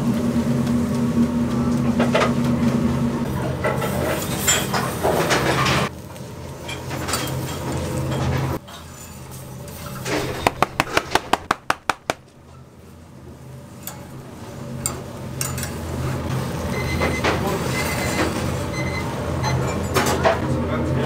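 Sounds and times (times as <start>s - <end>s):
sharp clicks: 10.4s - 12.3s.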